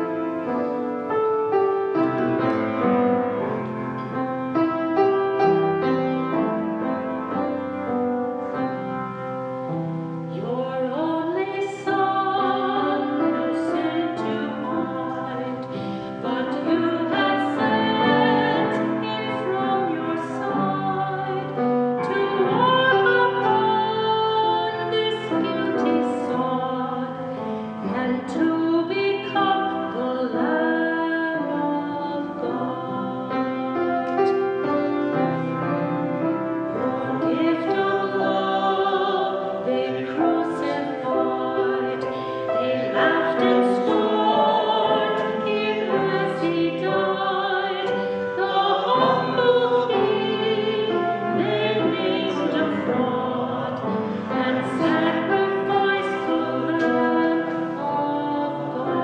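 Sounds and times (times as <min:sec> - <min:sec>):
piano accompaniment: 0:00.0 - 0:59.0
woman singing slow song: 0:10.3 - 0:27.2, 0:27.8 - 0:33.6, 0:36.8 - 0:59.0.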